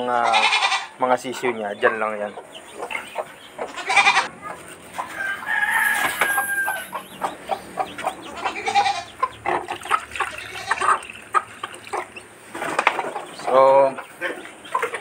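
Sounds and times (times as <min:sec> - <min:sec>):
hen clucking: 0:00.0 - 0:15.0
chicks peeping: 0:00.9 - 0:15.0
rooster crowing: 0:05.0 - 0:07.1.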